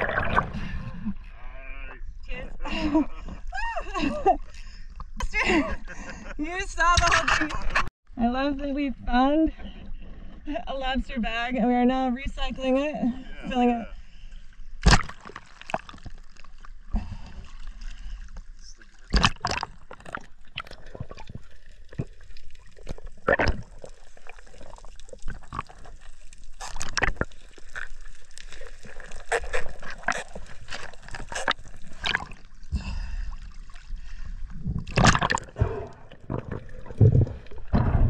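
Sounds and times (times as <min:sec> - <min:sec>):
rush of bubbles: 0:00.0 - 0:01.0, 0:19.1 - 0:32.7, 0:34.6 - 0:38.0
underwater gurgling and bubbles: 0:00.0 - 0:03.5, 0:14.0 - 0:38.0.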